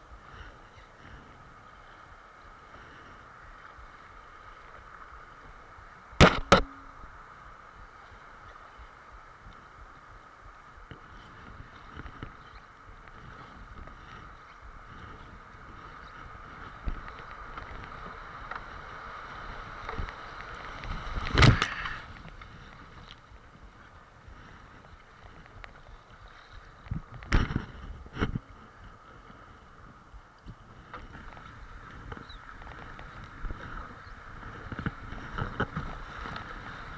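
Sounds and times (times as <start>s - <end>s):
water rushing around kayak: 0.0s - 36.9s
wind on microphone: 0.0s - 36.9s
sharp thumps: 6.2s - 7.0s.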